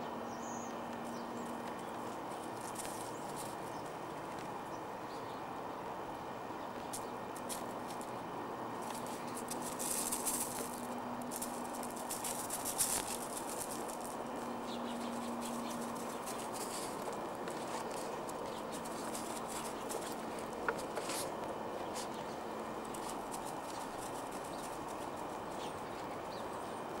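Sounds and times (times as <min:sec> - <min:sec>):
steady outdoor hiss: 0:00.0 - 0:27.0
footsteps on gravel: 0:00.9 - 0:04.6, 0:08.8 - 0:26.3.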